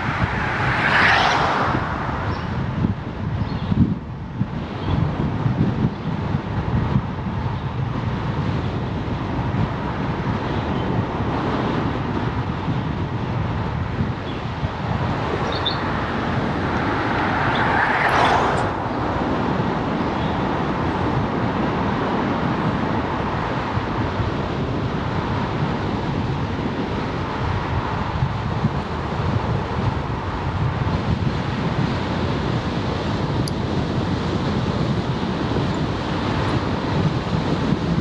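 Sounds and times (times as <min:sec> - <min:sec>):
vehicle passing: 0:00.0 - 0:03.4, 0:13.8 - 0:22.0
road noise: 0:00.0 - 0:38.0
wind rushing over microphone: 0:00.0 - 0:38.0.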